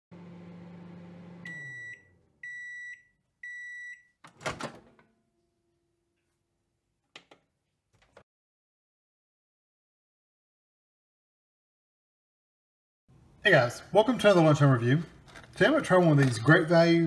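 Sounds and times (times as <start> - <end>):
microwave oven humming: 0.1 - 3.8
microwave beeps: 1.0 - 4.2
microwave door opening clunk: 4.3 - 5.0.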